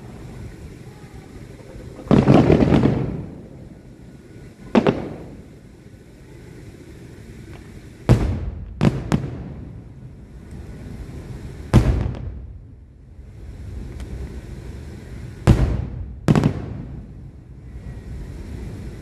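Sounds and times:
distant firework booms: 1.8 - 3.6, 4.7 - 5.5, 8.1 - 10.0, 11.7 - 12.8, 15.4 - 17.9.

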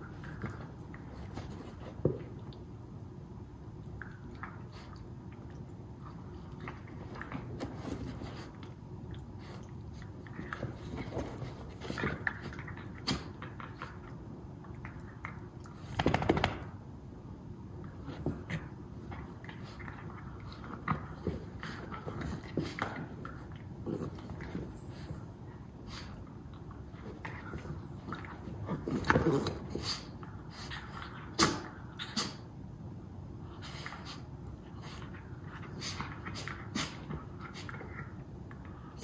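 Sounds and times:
dogs scuffling on a rug: 0.0 - 2.4, 6.0 - 14.0, 17.8 - 31.4.

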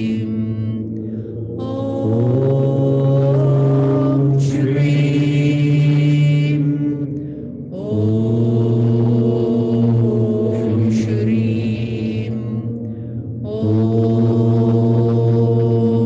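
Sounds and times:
woman chanting: 0.0 - 16.0
breath: 1.0 - 1.5, 7.1 - 7.7, 12.8 - 13.4.

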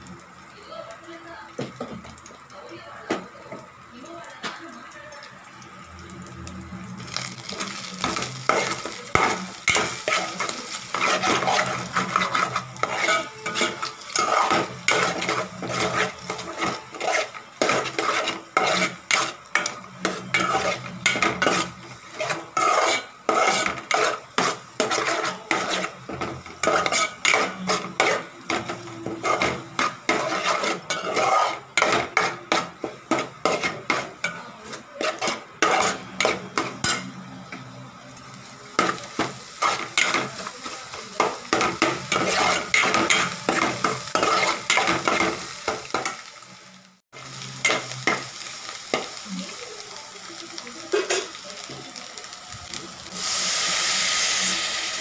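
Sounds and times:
light sizzle of frying: 0.0 - 55.0
metal spoon scraping a pan: 7.0 - 46.3, 50.9 - 51.4.

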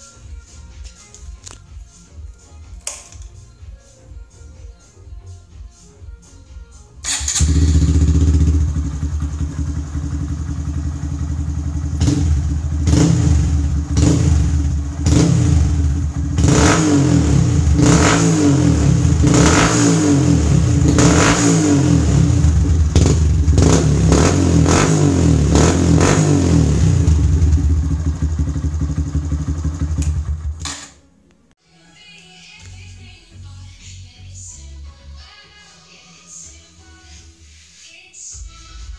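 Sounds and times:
motorcycle engine idling and revving: 7.0 - 30.7.

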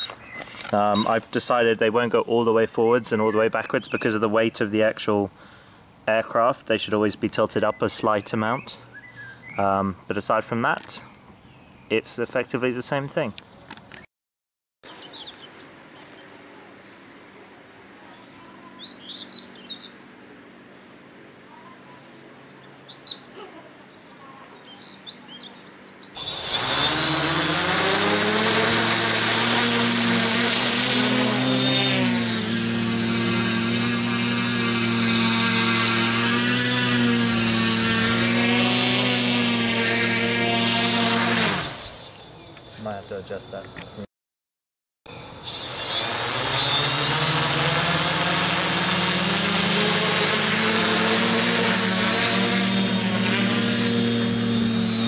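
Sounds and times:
faint bird chirps: 14.9 - 26.2
drone motors and propellers whine: 26.2 - 31.7, 45.1 - 55.0.

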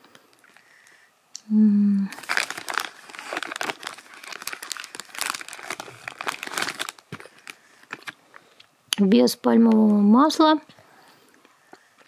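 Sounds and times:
person humming: 1.4 - 2.2
plastic packet crinkling: 2.1 - 8.7.

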